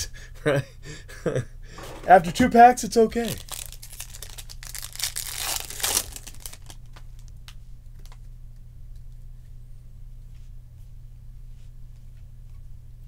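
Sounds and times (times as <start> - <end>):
foil wrapper tearing and crinkling: 3.2 - 7.4.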